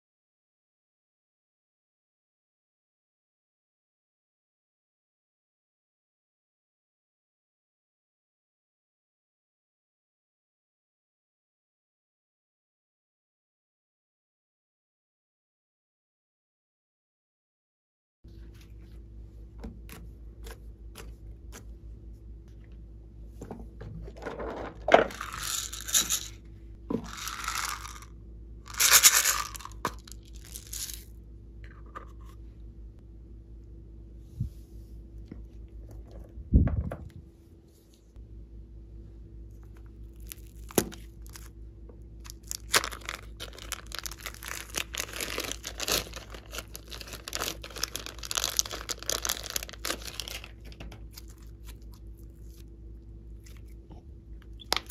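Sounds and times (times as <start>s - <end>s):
faint steady hum: 18.3s - 54.9s
plastic packaging rustling: 25.0s - 26.4s, 27.1s - 28.0s, 28.7s - 31.0s, 42.3s - 52.6s
plastic bag crinkling: 25.1s - 26.4s, 27.1s - 28.1s, 28.7s - 31.1s, 42.2s - 52.6s.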